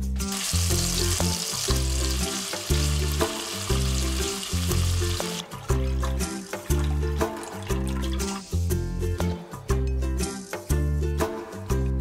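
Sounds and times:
background music: 0.0 - 12.0
bacon sizzling in frying pan: 0.2 - 5.4.

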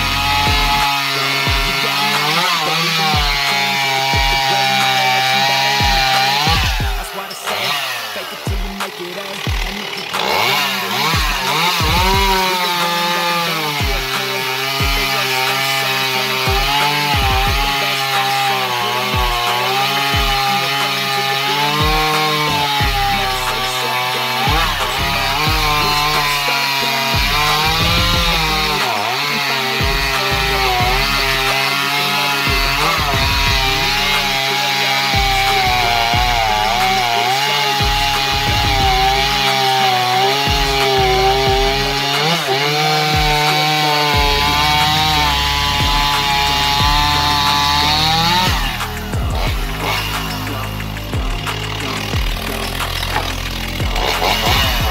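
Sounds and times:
chainsaw cutting log: 0.0 - 54.9
deep falling bass notes: 22.8 - 23.7, 24.5 - 26.4, 27.2 - 28.8, 44.2 - 54.9.

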